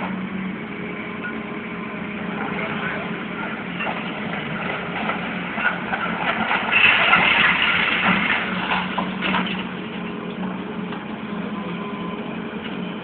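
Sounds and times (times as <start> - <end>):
demolition machine diesel engine: 0.0 - 13.0
concrete crunching and clattering: 2.4 - 11.1.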